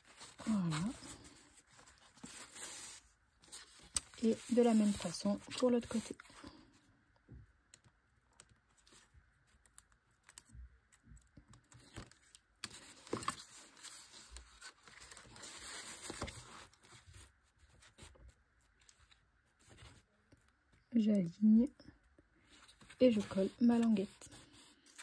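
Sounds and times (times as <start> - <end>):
stiff paper rustling and scraping: 0.0 - 6.4.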